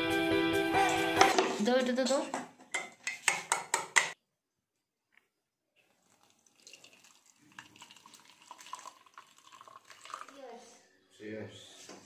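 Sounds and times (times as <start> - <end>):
coffee trickling through strainer: 5.8 - 10.4.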